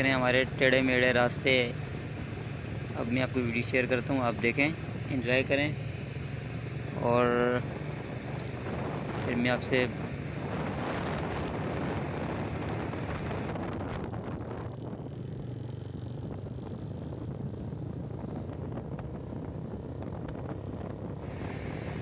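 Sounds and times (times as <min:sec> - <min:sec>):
motorcycle engine running: 0:00.0 - 0:22.0
wind rushing over microphone: 0:06.6 - 0:22.0.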